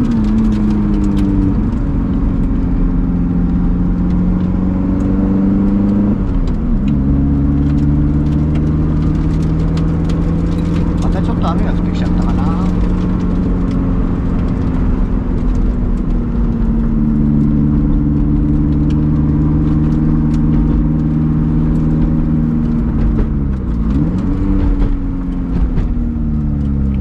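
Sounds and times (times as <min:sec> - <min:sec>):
car engine running: 0:00.0 - 0:27.0.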